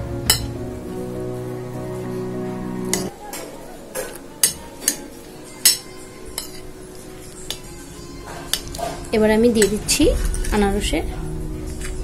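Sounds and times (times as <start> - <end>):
spoon clinking on ceramic plate: 5.6 - 6.6.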